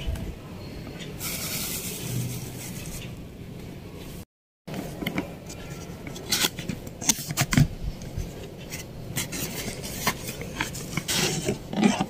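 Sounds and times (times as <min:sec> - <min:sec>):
cardboard and plastic rustling: 0:04.7 - 0:12.0.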